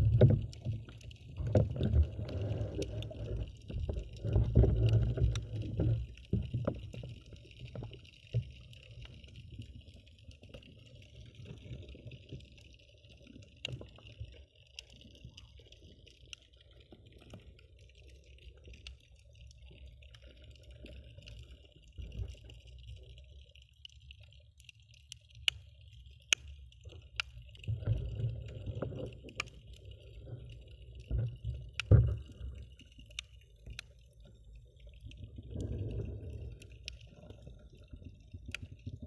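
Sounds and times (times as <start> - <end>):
underwater rumble of moving water: 0.0 - 39.0
small clicks: 22.1 - 28.0, 28.7 - 34.1.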